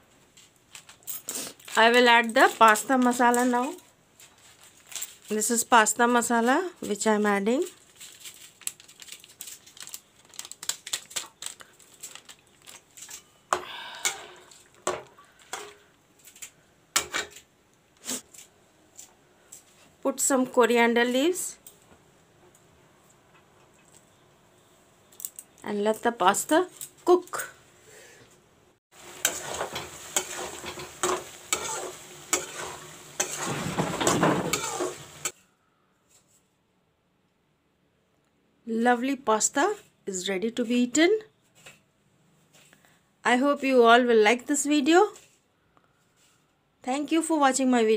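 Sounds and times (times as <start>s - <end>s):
spatula scraping metal pan: 29.1s - 35.4s.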